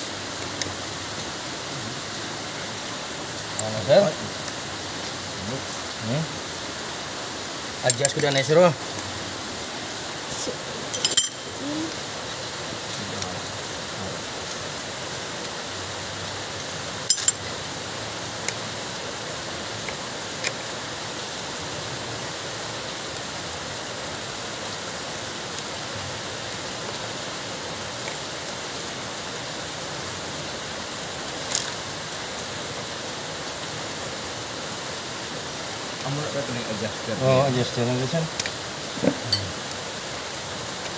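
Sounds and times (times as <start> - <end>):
steady hiss: 0.0 - 40.9
metal clicks and clinks: 7.9 - 8.6, 10.9 - 11.6, 17.1 - 17.5.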